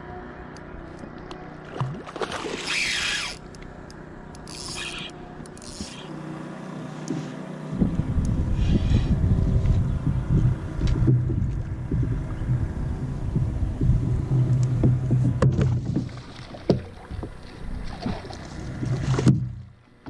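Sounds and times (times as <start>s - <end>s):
open water: 0.0s - 20.0s
wind buffeting microphone: 7.7s - 16.2s.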